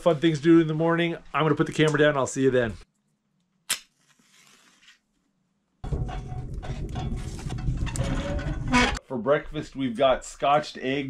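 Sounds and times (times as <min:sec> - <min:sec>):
wood stove fire rumbling: 0:05.8 - 0:09.0.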